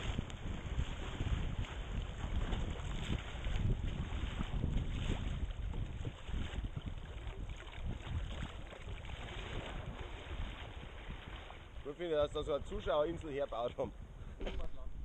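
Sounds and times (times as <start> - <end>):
wind buffeting microphone: 0.0 - 15.0
river water rushing and splashing: 6.3 - 12.0.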